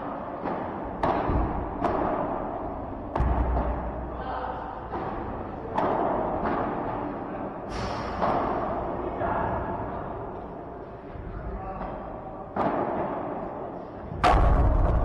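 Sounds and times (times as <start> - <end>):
ball hitting court walls: 0.0 - 4.1, 4.8 - 9.0, 11.8 - 15.0
rackets striking ball: 0.0 - 10.7, 11.8 - 15.0
heavier thud: 0.4 - 4.0, 14.1 - 15.0.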